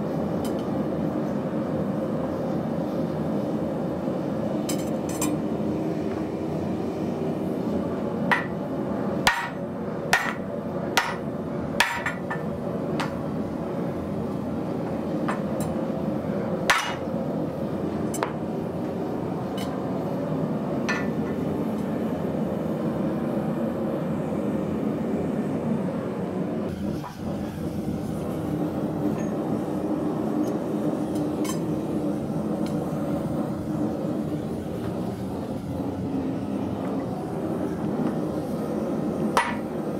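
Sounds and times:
steady machine hum: 0.0 - 39.9
hammer striking steel: 8.3 - 8.6, 9.3 - 12.4, 16.7 - 17.0, 39.4 - 39.7.

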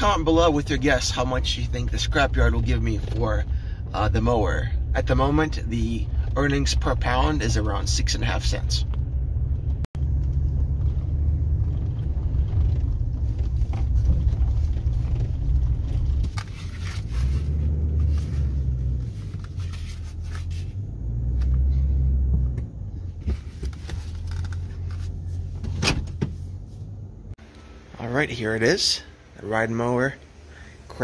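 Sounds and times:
vehicle rumbling on dirt track: 0.0 - 27.3
knocks and rattles: 9.6 - 16.7.

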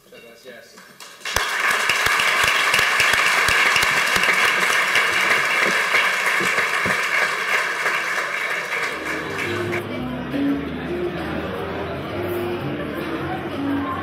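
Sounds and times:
people applauding: 0.7 - 9.8.

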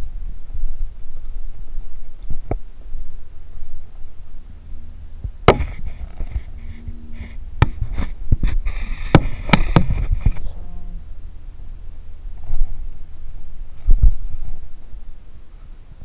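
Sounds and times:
wind rumble on microphone: 0.0 - 16.0
camera handling knocks and rustles: 5.5 - 6.5, 7.6 - 10.4.

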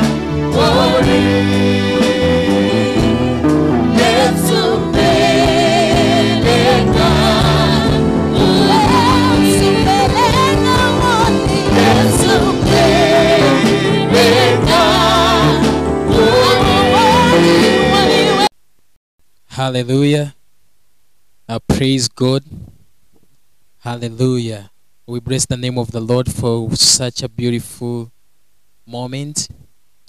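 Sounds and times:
backing voices singing: 0.0 - 18.5
electronic keyboard chords: 0.0 - 18.5
woman singing lead: 0.6 - 18.5.

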